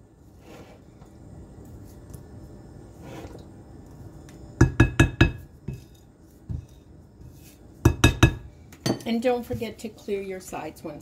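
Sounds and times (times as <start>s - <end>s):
utensil knocking on glass bowl: 7.9s - 9.0s.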